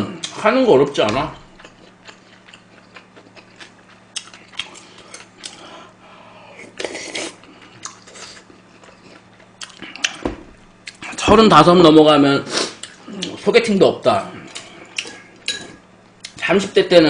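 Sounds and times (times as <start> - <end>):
chewing: 1.4 - 5.6, 6.6 - 10.2.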